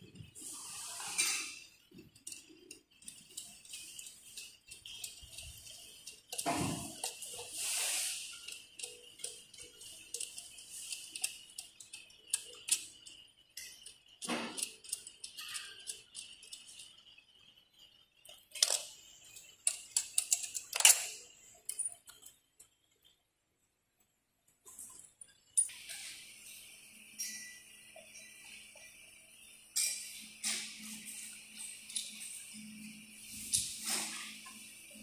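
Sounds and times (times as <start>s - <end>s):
screwdriver clicking on metal: 2.2s - 16.9s, 19.6s - 22.3s.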